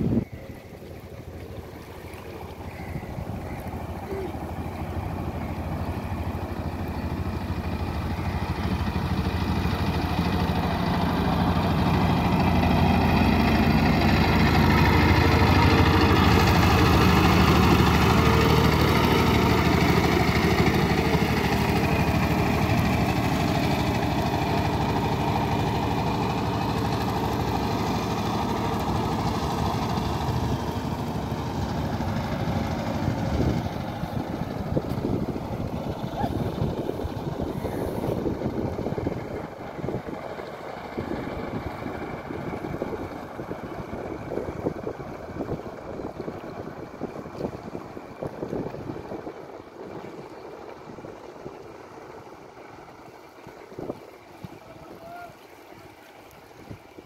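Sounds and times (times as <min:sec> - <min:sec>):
motorboat engine running: 0:00.0 - 0:57.0.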